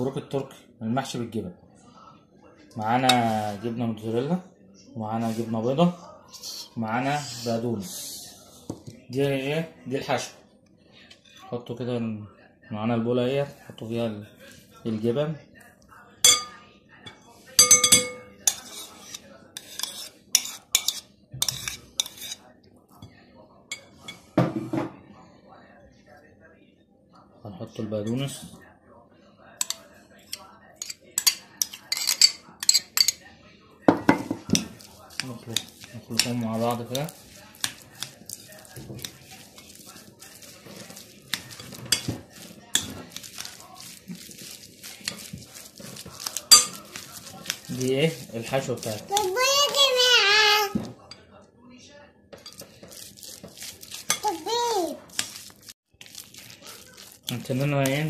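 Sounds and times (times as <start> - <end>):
hand mixing food rustling: 2.7 - 4.3, 5.0 - 10.4, 13.4 - 16.5, 34.4 - 51.1, 52.4 - 58.0
metal spoon scraping glass bowl: 17.6 - 22.4, 29.6 - 33.2, 34.6 - 49.4, 52.4 - 54.5, 55.1 - 58.0.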